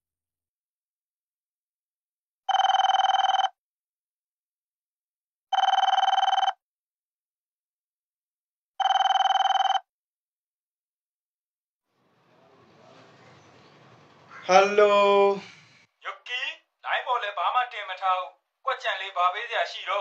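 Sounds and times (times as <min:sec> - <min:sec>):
mobile phone ringing: 0:02.5 - 0:03.6, 0:05.5 - 0:06.6, 0:08.8 - 0:09.9.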